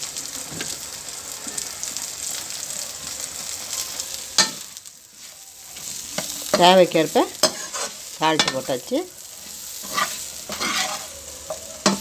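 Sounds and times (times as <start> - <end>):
food sizzling in a frying pan: 0.0 - 12.0
ladle scraping pan: 7.4 - 8.6, 9.8 - 12.0.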